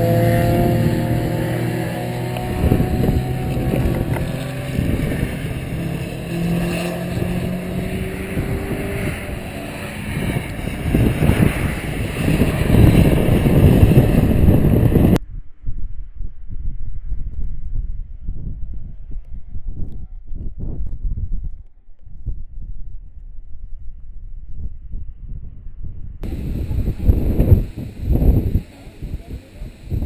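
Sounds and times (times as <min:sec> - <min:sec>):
racing cars passing: 0:00.0 - 0:15.2
wind rumble on microphone: 0:00.0 - 0:30.0.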